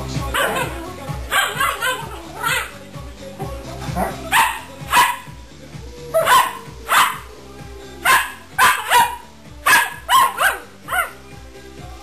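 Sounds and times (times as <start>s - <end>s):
background music with beat: 0.0s - 12.0s
dogs barking: 0.2s - 2.8s, 3.9s - 5.3s, 6.1s - 7.3s, 8.0s - 11.2s.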